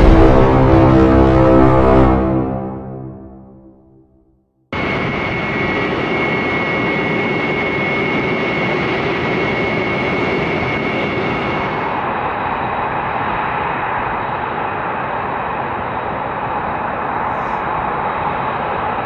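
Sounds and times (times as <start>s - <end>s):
jet engines with high whine: 4.8s - 19.0s.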